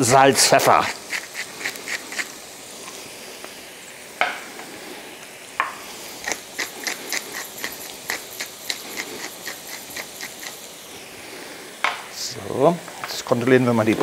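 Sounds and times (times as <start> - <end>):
potatoes sizzling faintly: 0.0 - 14.0
pepper mill grinding clicks: 6.2 - 10.6.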